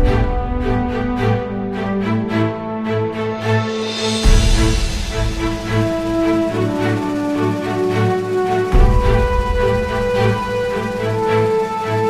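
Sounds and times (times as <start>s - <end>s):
rushing wash: 0.0s - 12.0s
background music with pulsing bass: 3.8s - 12.0s
deep bass hit: 4.2s - 6.3s.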